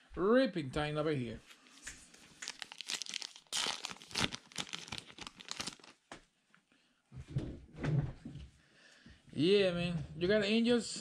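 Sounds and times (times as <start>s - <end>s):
wrapper tearing and crinkling: 2.2s - 6.0s.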